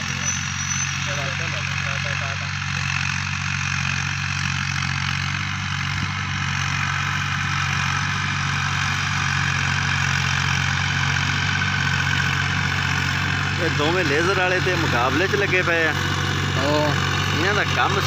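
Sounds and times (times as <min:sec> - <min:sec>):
diesel tractor engines droning: 0:00.0 - 0:18.0.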